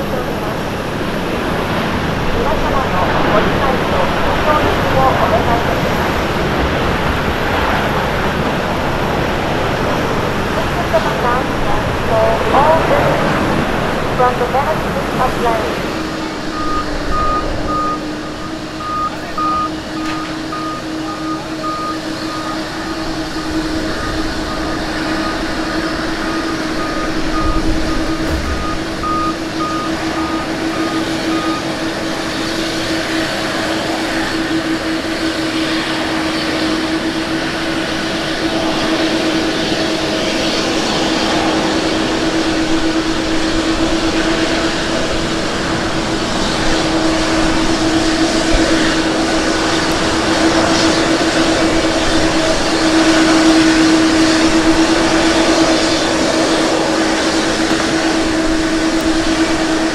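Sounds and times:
jet engine rushing: 0.0 - 59.9
short high beeps: 16.0 - 23.0, 26.5 - 31.6.

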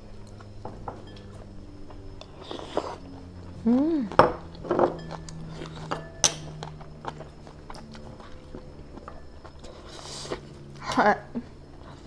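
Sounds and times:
low steady hum: 0.0 - 12.0
spoon and chopsticks clinking bowls: 4.2 - 6.8.

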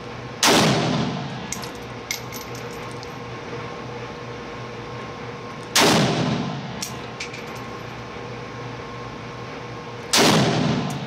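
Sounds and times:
steady hum: 0.0 - 11.0
light metallic clinks: 1.5 - 3.2
gunshot echoing indoors: 5.8 - 6.5, 10.1 - 11.0.

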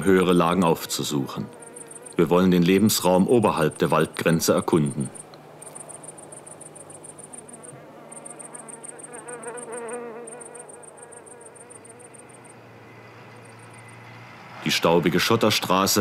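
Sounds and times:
insect chirping trills: 0.5 - 14.5
faint wavering sound: 1.4 - 2.5, 4.9 - 14.4.

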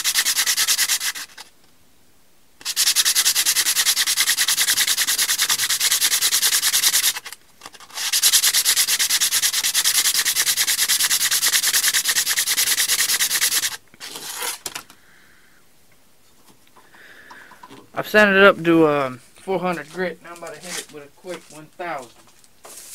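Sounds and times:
sandpaper rasping on spinning wood: 0.0 - 1.4, 2.6 - 14.6, 19.8 - 22.1.

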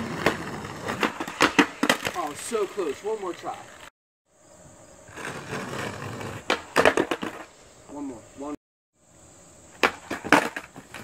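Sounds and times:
skateboard deck clacking on concrete: 0.0 - 2.4, 5.2 - 7.5, 9.8 - 11.0
skateboard rolling on concrete: 0.0 - 11.0.

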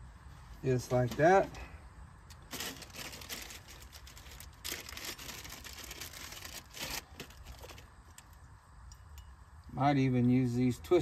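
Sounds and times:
cable rustling: 2.3 - 8.4
plastic bag crinkling: 2.4 - 7.9.

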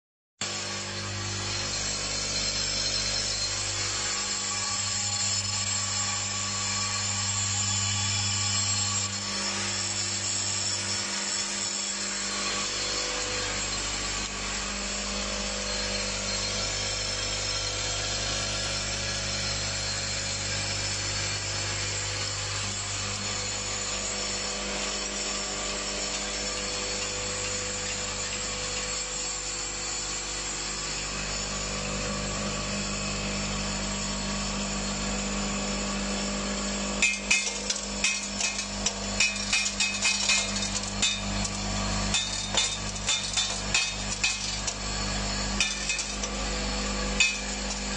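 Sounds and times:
vibratory bowl feeders humming: 36.4 - 47.9.

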